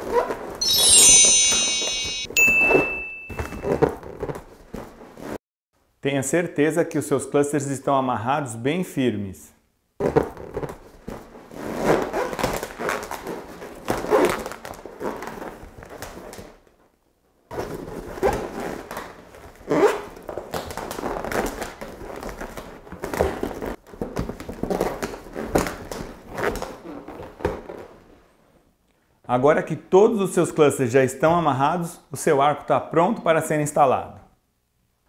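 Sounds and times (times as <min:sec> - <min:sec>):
balloons squeaking and rubbing: 0:17.6 - 0:28.2.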